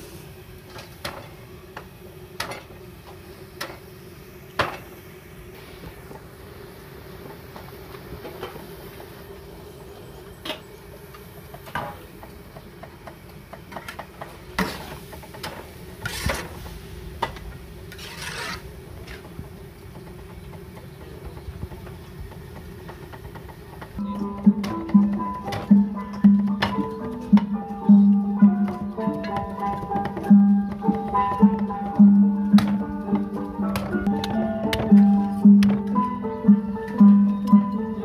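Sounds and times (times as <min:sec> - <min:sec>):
metal spatula scraping a wok: 0:16.0 - 0:16.5, 0:17.9 - 0:18.6
music: 0:24.0 - 0:38.0.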